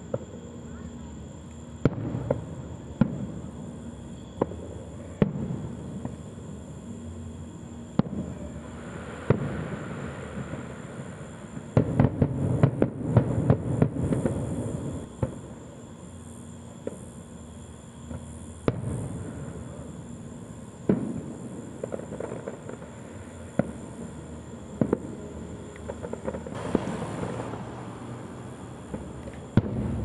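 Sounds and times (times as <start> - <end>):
firework crackling pops: 1.5 - 6.4, 7.9 - 15.7, 16.8 - 17.2, 18.0 - 30.0
fireworks shells bursting: 25.7 - 30.0.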